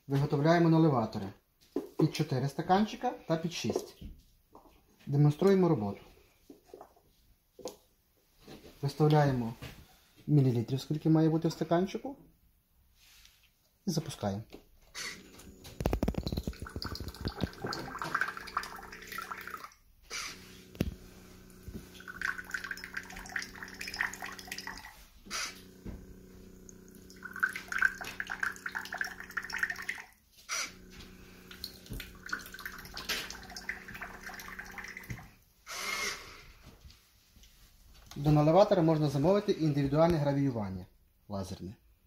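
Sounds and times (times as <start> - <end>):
small pump humming: 14.9 - 36.4
liquid splashing into glass: 15.9 - 19.8, 31.5 - 35.3.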